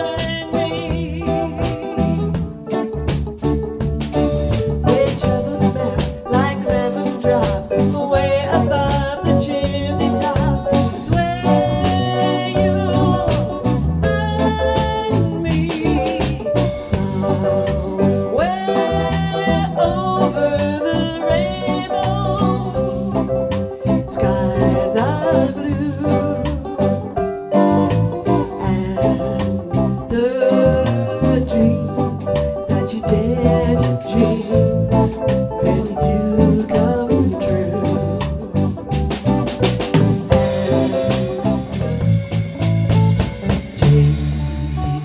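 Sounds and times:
drum kit: 0.0s - 45.0s
electric bass: 0.0s - 45.0s
electric guitar: 0.0s - 45.0s
rock band playing: 0.0s - 45.0s
drum hits: 0.2s - 7.8s, 13.0s - 20.2s, 37.8s - 45.0s.

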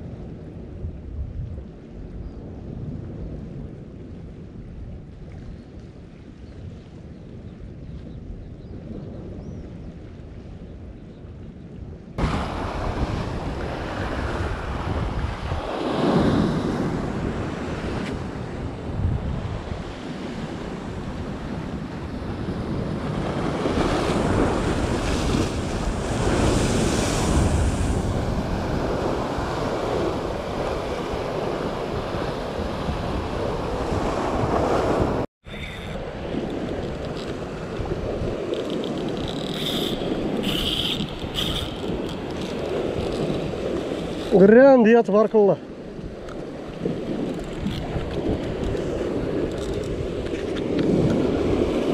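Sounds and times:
wind buffeting microphone: 0.0s - 44.8s, 45.6s - 51.9s
sea surf breaking on rocks: 12.2s - 35.3s, 46.4s - 51.9s.

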